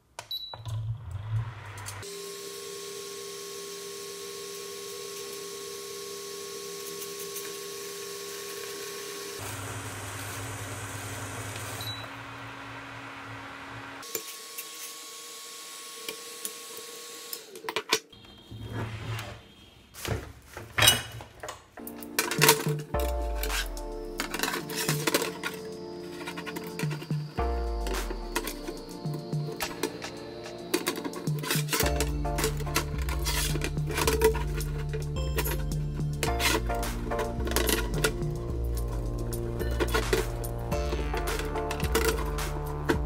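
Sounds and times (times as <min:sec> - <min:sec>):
induction cooker whine and hum: 0:00.3 - 0:17.6.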